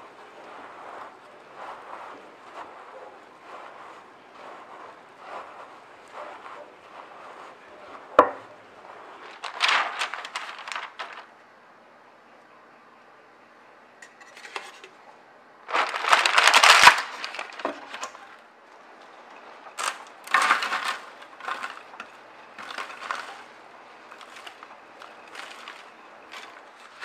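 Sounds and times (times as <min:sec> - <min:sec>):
parchment paper crinkling: 0:00.1 - 0:11.3, 0:15.6 - 0:18.4, 0:19.4 - 0:27.0.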